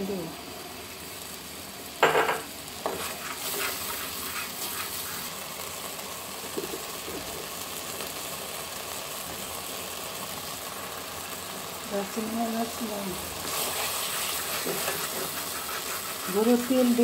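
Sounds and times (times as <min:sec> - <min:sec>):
frying sizzle: 0:00.0 - 0:17.0
spatula scraping a pan: 0:02.8 - 0:05.4, 0:13.4 - 0:17.0.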